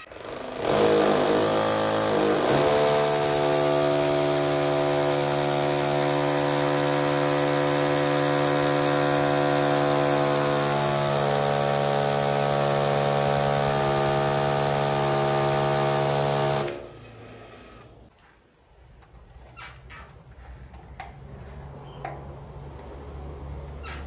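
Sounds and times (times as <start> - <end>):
electric drill boring into wall: 0.0 - 18.0.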